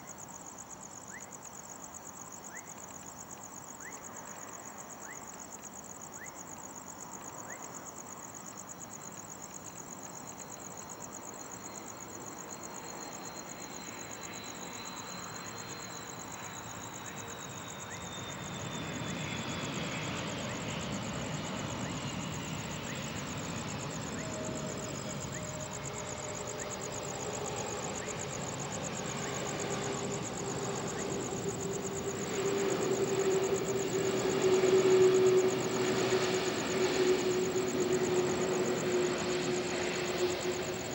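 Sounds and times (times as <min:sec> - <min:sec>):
crickets chirping: 0:00.0 - 0:40.9
jet engine whine: 0:11.5 - 0:40.9
jet engine rumble: 0:17.9 - 0:40.9.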